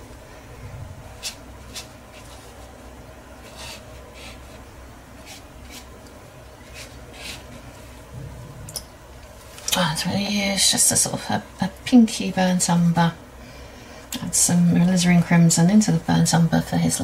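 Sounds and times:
low steady hum: 0.0s - 17.0s
brush scratching on paper: 1.2s - 2.7s, 3.4s - 6.0s, 6.6s - 7.8s.

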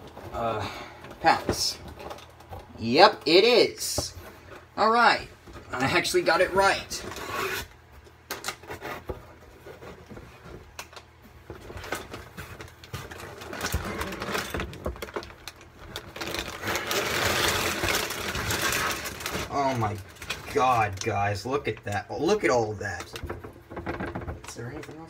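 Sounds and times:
plastic bags rustling: 5.4s - 25.0s.

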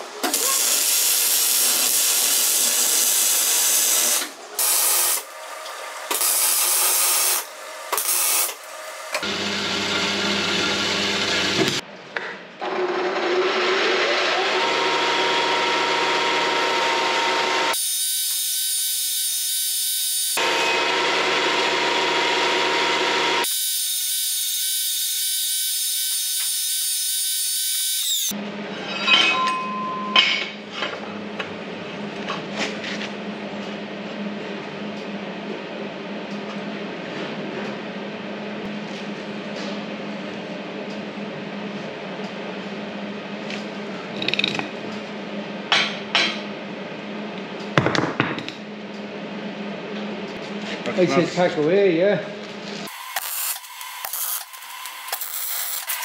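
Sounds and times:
harsh metalworking power tool noise: 0.0s - 11.8s, 12.6s - 28.4s, 52.8s - 56.0s
motor spinning up with whine: 6.0s - 11.8s, 25.7s - 28.3s.

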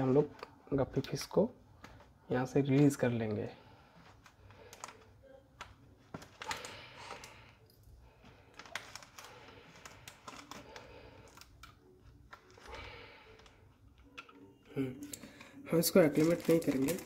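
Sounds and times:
small irregular clicks: 4.1s - 14.4s
plastic bag crinkling: 6.2s - 7.5s, 8.3s - 13.6s, 15.1s - 17.0s.

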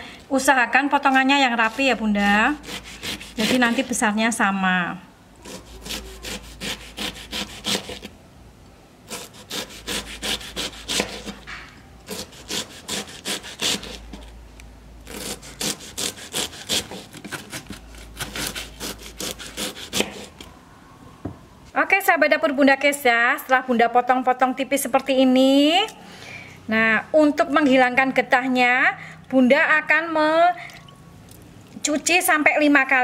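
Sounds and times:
knife slicing on a plastic board: 9.1s - 11.5s, 15.1s - 20.4s.

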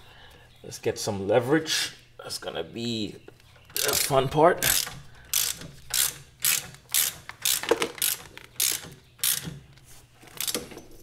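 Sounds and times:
ratchet wrench clicking: 3.8s - 9.6s, 10.4s - 10.6s.

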